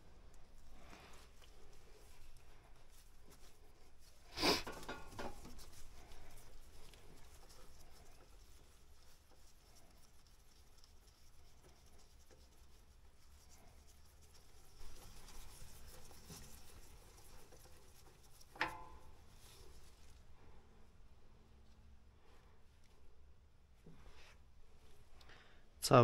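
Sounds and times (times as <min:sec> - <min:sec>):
rag scraping and rustling: 0:00.6 - 0:08.4.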